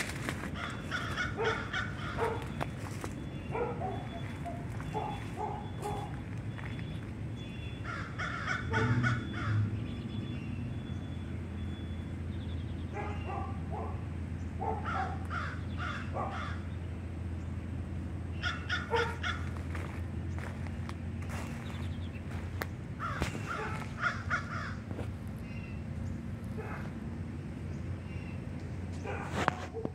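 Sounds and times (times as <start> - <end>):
crows cawing: 0.2 - 3.0, 7.8 - 9.7, 14.8 - 16.7, 18.4 - 20.5, 23.0 - 25.1.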